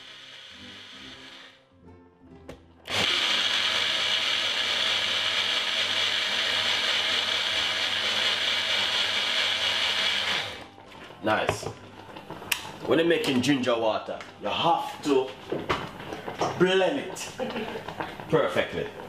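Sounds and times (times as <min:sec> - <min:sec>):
blender motor whirring: 0:00.0 - 0:01.6, 0:02.9 - 0:10.7.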